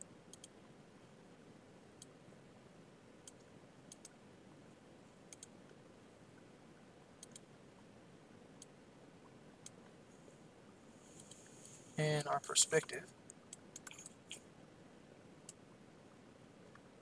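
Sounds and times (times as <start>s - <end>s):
faint computer mouse clicks: 0.0s - 0.6s, 3.2s - 4.2s, 5.3s - 5.5s, 7.2s - 7.5s, 13.3s - 14.4s
low room tone hiss: 0.0s - 17.0s.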